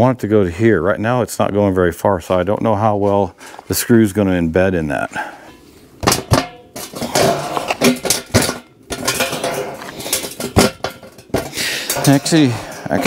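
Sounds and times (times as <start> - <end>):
metal stove pipe clanking: 5.4 - 13.0.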